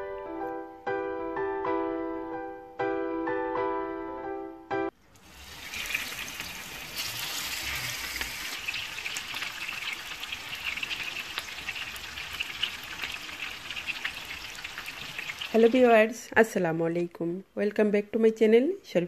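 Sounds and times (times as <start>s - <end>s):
fish sizzling with crackles: 5.2s - 15.9s.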